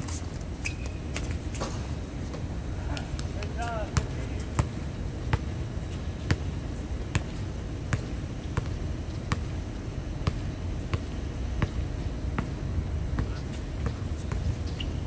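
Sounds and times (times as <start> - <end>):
low background rumble: 0.0 - 15.0
basketball bouncing on hard court: 4.0 - 5.5, 6.2 - 6.5, 7.1 - 9.6, 10.2 - 15.0.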